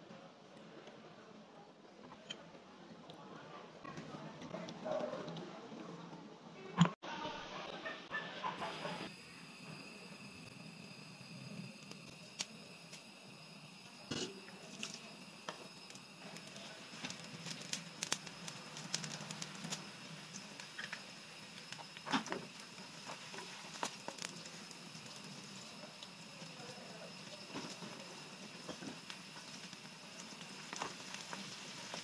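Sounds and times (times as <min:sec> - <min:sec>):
ginger sizzling in hot oil: 0:08.6 - 0:32.0.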